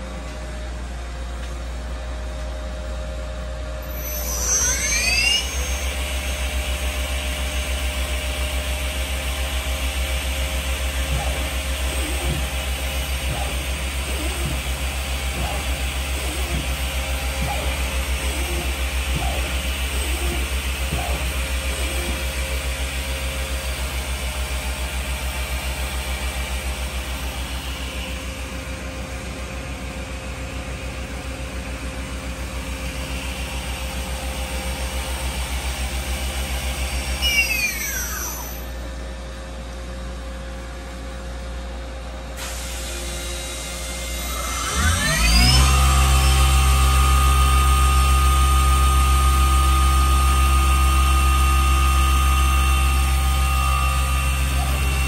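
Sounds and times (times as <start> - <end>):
spindle whine: 0.0 - 39.4, 44.0 - 55.0
machine tool mechanical hum: 3.8 - 39.4.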